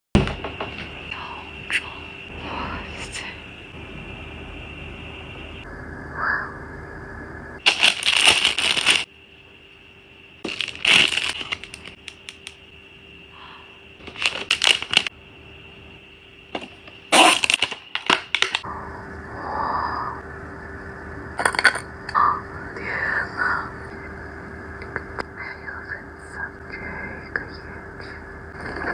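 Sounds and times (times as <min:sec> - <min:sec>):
plastic packaging crinkling: 0:07.6 - 0:09.1, 0:10.4 - 0:12.6, 0:14.0 - 0:15.1, 0:17.2 - 0:18.6.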